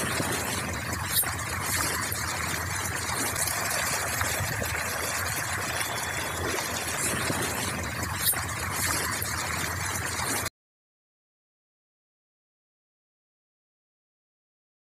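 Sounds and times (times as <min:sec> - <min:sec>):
fish thrashing water: 0:00.0 - 0:10.5.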